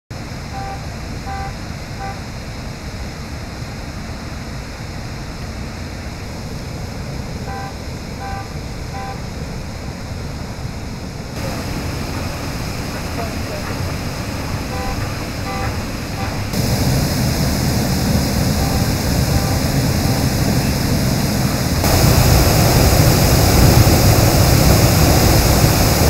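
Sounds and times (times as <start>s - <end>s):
water jetting from fire hydrant: 0.1s - 26.0s
short electronic beeps: 0.5s - 2.2s, 7.5s - 9.2s.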